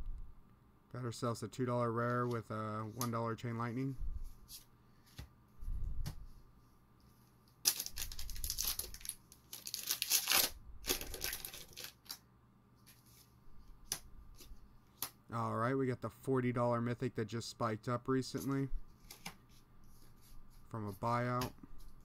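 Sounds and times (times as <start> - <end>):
foil wrapper tearing and crinkling: 7.6 - 12.2.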